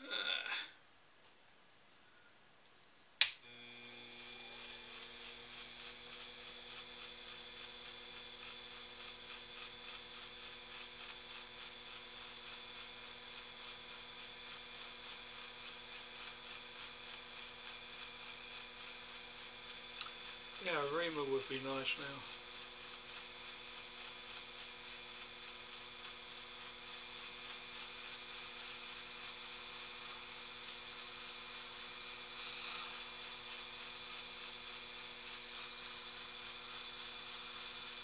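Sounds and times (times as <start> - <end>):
lathe switch click: 3.2 - 3.4
electric motor humming and whining: 3.4 - 38.0.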